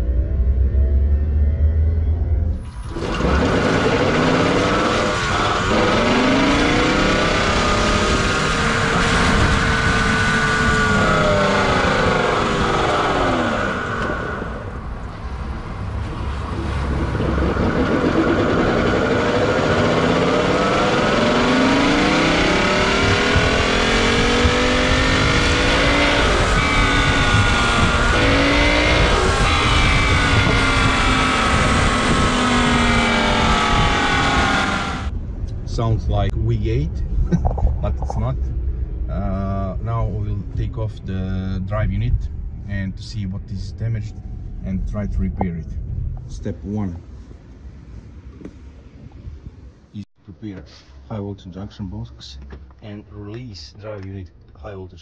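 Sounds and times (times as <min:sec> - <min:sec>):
whining tones sweeping: 0:00.0 - 0:35.2.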